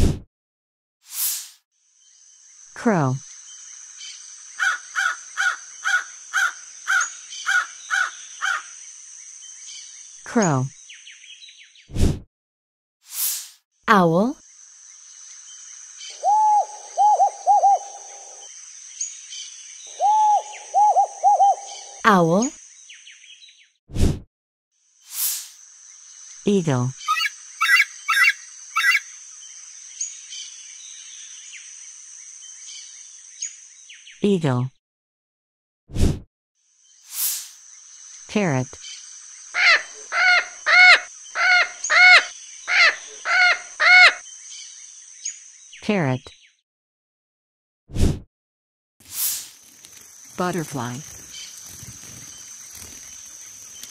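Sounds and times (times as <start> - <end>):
owl hooting: 4.6 - 8.7, 16.1 - 18.5, 19.9 - 22.0, 27.1 - 29.1, 39.6 - 44.2
small bird chirps: 27.0 - 31.6, 49.5 - 53.9
parrot squawking: 27.1 - 29.1, 39.6 - 44.2.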